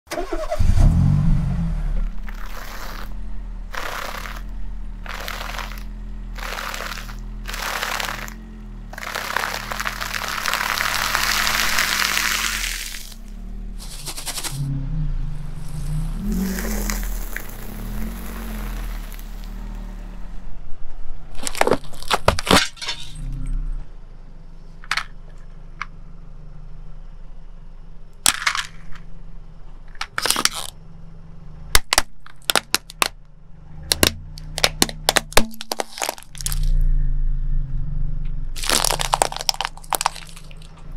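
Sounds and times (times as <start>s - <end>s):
car engine running low: 0.1s - 40.9s
snack puffs crunching: 2.2s - 14.6s, 15.6s - 19.9s, 21.3s - 23.4s, 33.9s - 36.8s, 38.6s - 40.9s
plastic bag crinkling: 3.7s - 8.4s, 9.0s - 14.6s, 21.4s - 22.6s, 34.6s - 36.7s, 38.6s - 40.8s
plastic toy cracking and snapping: 21.4s - 22.6s, 30.0s - 30.8s, 31.8s - 33.2s, 33.9s - 36.8s, 38.6s - 40.8s.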